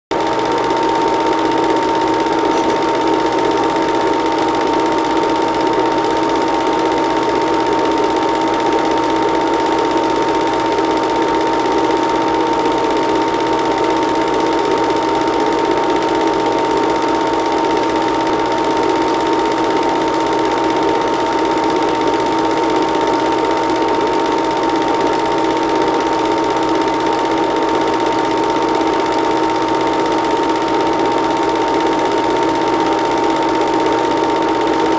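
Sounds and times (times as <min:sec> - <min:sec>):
film projector running: 0:00.1 - 0:34.9.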